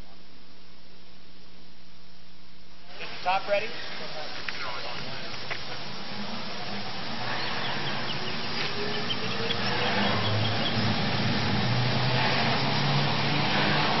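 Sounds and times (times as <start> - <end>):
chairlift machinery humming: 3.0 - 14.0.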